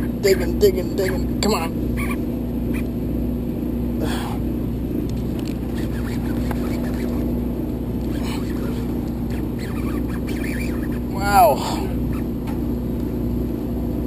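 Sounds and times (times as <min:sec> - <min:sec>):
boat engine droning: 0:00.0 - 0:14.0.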